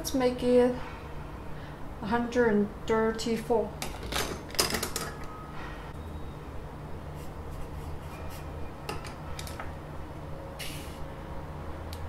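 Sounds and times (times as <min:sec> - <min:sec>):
steady low hum: 0:00.0 - 0:04.5.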